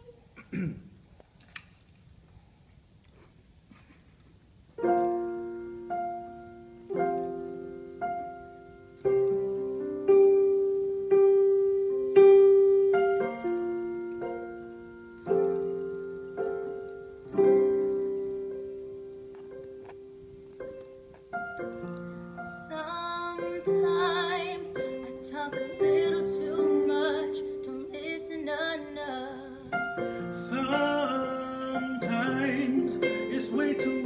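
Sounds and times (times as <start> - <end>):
piano chords ringing: 4.8 - 34.0.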